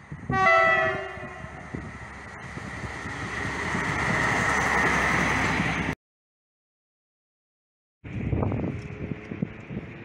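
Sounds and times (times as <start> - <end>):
rail vehicle passing rumble: 0.0 - 6.0, 8.0 - 10.0.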